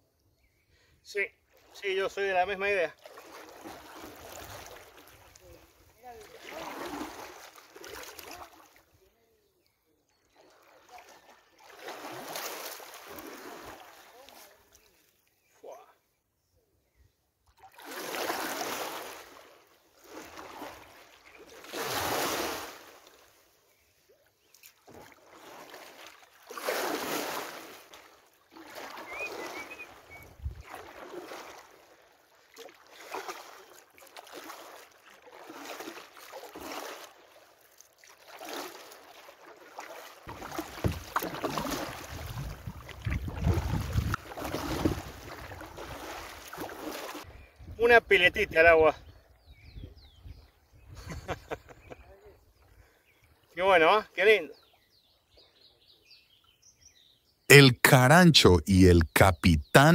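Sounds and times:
paddle strokes splashing water: 1.4s - 9.0s, 10.2s - 15.1s, 17.5s - 47.3s
wind buffeting microphone: 42.1s - 44.2s.

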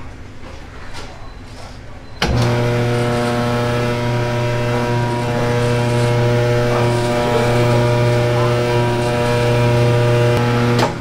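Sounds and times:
electric motor humming: 2.2s - 11.0s.

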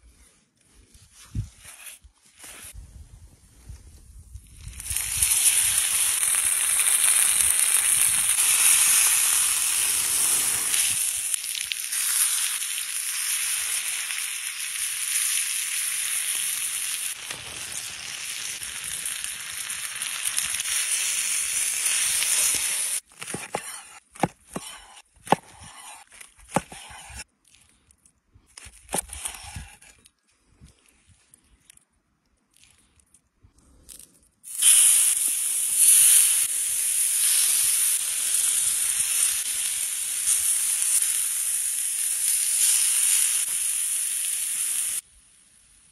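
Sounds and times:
steak sizzling on hot stone: 4.6s - 23.0s, 34.5s - 45.0s
knife slicing on wooden board: 23.2s - 27.2s, 28.6s - 30.0s.

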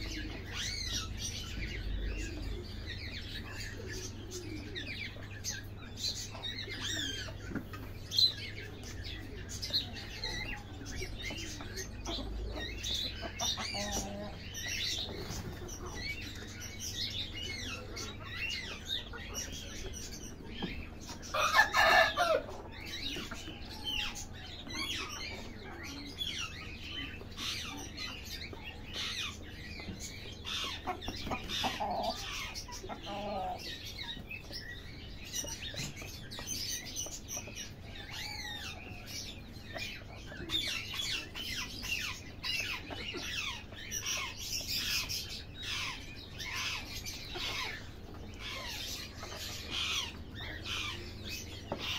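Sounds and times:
birds chirping: 0.0s - 51.9s
chickens clucking and calling: 0.0s - 51.9s.

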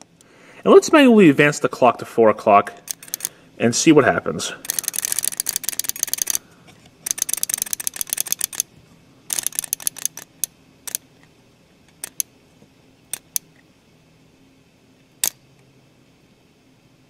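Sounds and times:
flip clock tiles clicking: 2.8s - 3.4s, 4.6s - 6.4s, 7.0s - 8.7s, 9.3s - 11.0s, 11.9s - 12.3s, 13.1s - 13.4s.

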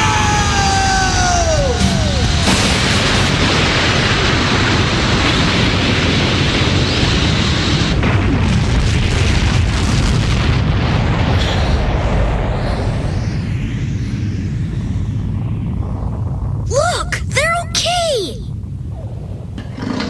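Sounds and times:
deep rumble: 0.0s - 17.4s, 18.4s - 20.0s
cartoon explosion blast: 1.4s - 13.6s.

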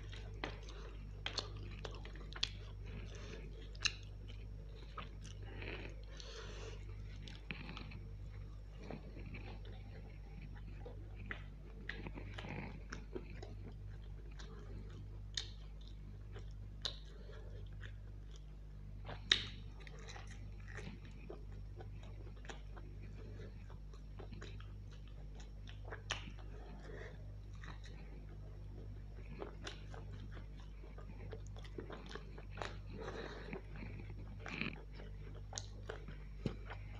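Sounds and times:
chewing and biting food: 0.0s - 36.9s.

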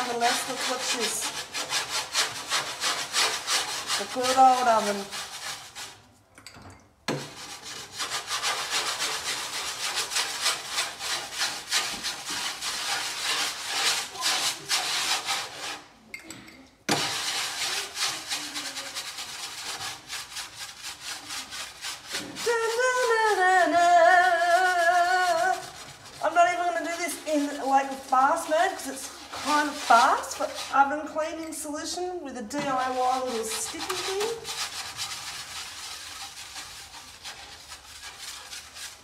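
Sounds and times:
woman speaking: 0.0s - 1.3s, 4.0s - 5.1s, 22.4s - 25.6s, 26.2s - 34.5s
tablet scrubbing glass: 0.0s - 6.0s, 7.1s - 15.9s, 16.9s - 31.0s, 32.6s - 39.0s.

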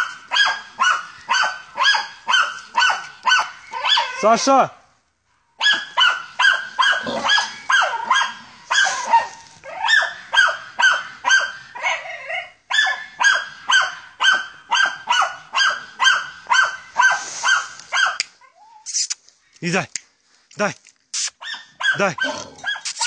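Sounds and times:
dog barking: 0.0s - 4.2s, 5.6s - 18.2s, 21.4s - 22.9s.

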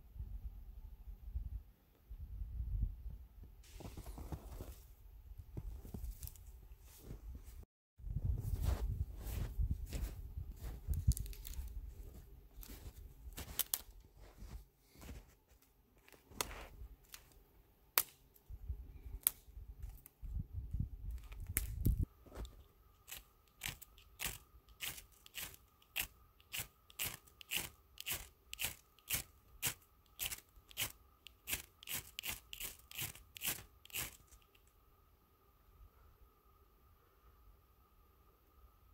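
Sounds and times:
boots crunching in snow: 3.7s - 4.9s, 8.4s - 15.5s, 22.2s - 30.9s, 31.5s - 34.2s
ferrocerium rod scraping: 23.1s - 34.6s.

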